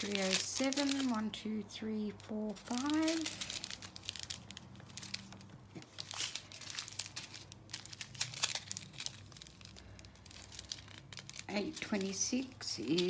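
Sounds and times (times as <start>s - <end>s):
plastic bags crinkling: 0.0s - 13.0s
small beads clicking and rattling: 2.6s - 13.0s.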